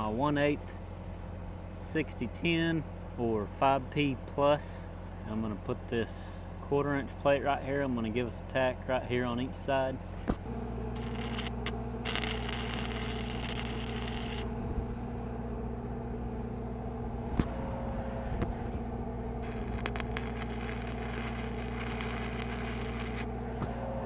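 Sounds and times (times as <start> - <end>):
welder engine humming: 10.1 - 24.0
welding arc crackling and hissing: 11.0 - 14.6, 19.4 - 23.3.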